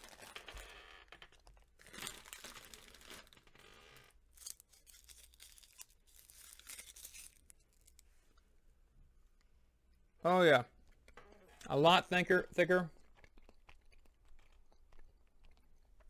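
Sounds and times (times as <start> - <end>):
foil wrapper crinkling: 0.0 - 0.7, 1.4 - 8.0.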